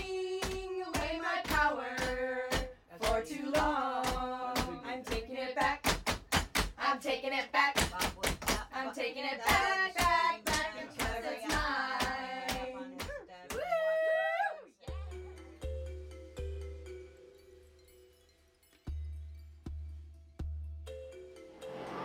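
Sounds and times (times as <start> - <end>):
song with sung vocal: 0.0 - 6.1, 6.7 - 13.2
sharp steady beat: 0.0 - 6.8, 9.5 - 13.1.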